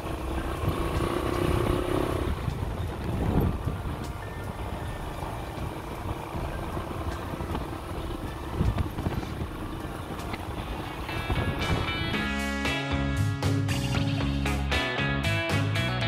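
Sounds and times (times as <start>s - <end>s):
music: 0.0s - 16.0s
vehicle engine and road rumble: 0.0s - 16.0s.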